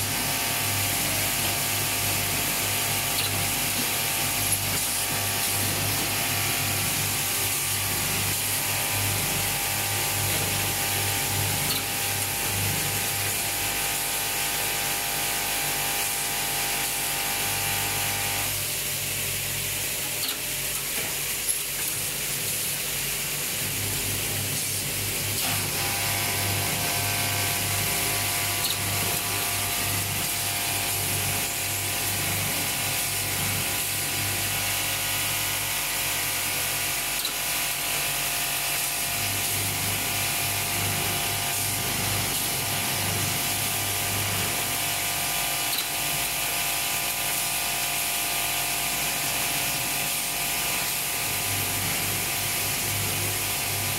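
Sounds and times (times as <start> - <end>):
machine humming: 0.0 - 21.5.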